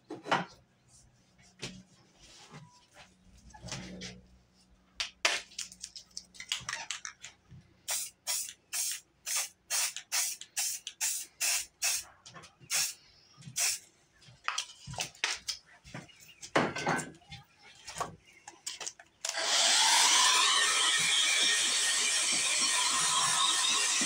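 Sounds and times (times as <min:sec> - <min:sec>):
spray paint can hissing: 0:07.9 - 0:12.0, 0:12.7 - 0:13.0, 0:13.6 - 0:13.8.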